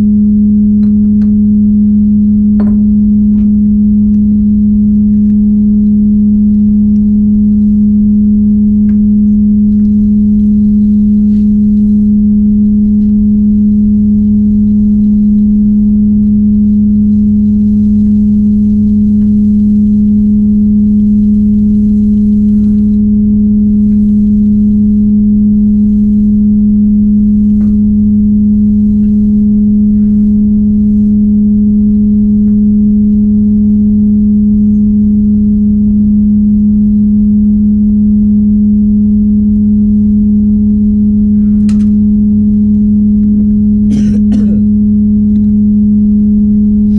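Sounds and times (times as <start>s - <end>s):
low rumble: 0.0s - 46.9s
steady low hum: 0.0s - 46.9s.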